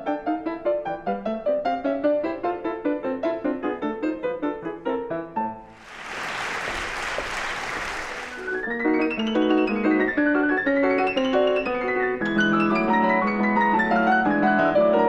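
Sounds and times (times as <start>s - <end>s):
audience applause: 5.8s - 8.6s
grand piano fast runs: 5.8s - 8.6s.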